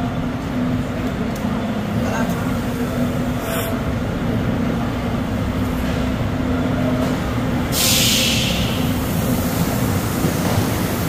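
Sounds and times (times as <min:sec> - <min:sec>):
air brakes hissing: 0:07.7 - 0:11.0.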